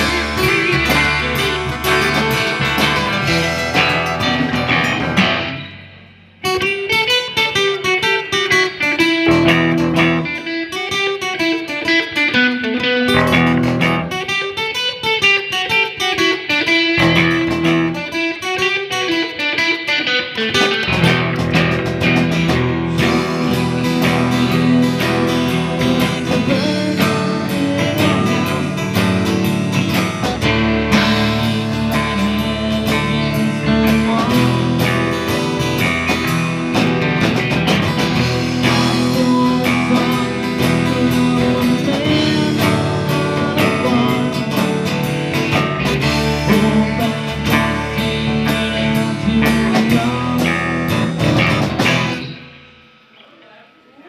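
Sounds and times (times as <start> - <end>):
keyboard: 0.0 - 6.8, 20.8 - 52.8
drums: 0.0 - 54.0
electric and acoustic guitars: 0.0 - 54.0.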